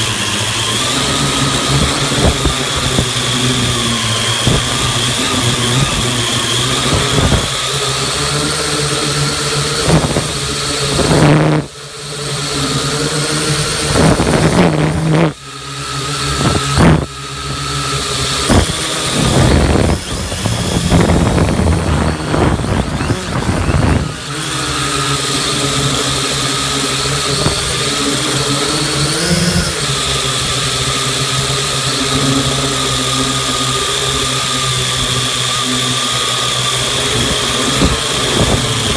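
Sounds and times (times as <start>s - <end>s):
drone propellers whining: 0.0s - 38.9s.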